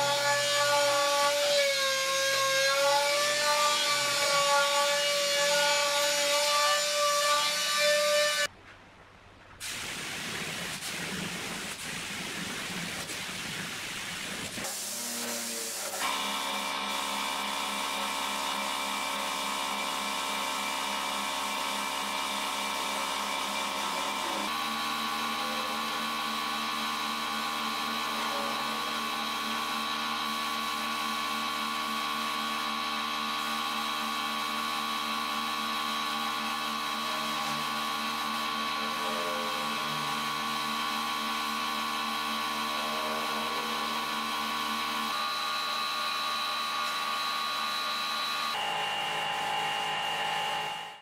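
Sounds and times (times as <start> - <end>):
machine hum: 16.1 - 51.0.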